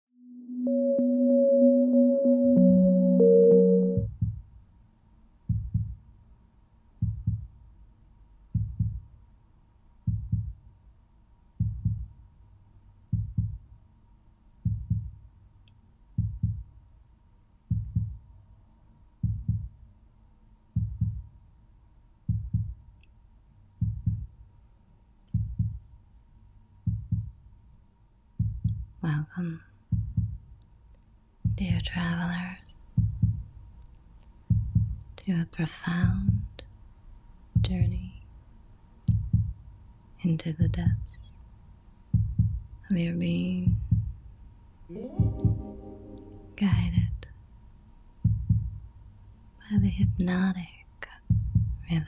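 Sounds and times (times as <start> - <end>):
held music tones: 0.2 - 4.1, 44.9 - 47.1
slow heartbeat thumps: 4.0 - 4.5, 5.5 - 6.0, 7.0 - 7.6, 8.5 - 9.1, 10.1 - 10.6, 11.6 - 12.1, 13.1 - 13.7, 14.6 - 15.2, 16.2 - 16.7, 17.7 - 18.3, 19.2 - 19.8, 20.8 - 21.3, 22.3 - 22.8, 23.8 - 24.3, 25.3 - 25.9, 26.8 - 27.4, 28.4 - 29.0, 29.9 - 30.5, 31.4 - 32.1, 33.0 - 33.5, 34.5 - 35.1, 36.0 - 36.5, 37.6 - 38.1, 39.1 - 39.6, 40.6 - 41.1, 42.1 - 42.8, 43.5 - 44.2, 44.9 - 47.2, 48.2 - 48.9, 49.6 - 50.3, 51.2 - 51.9.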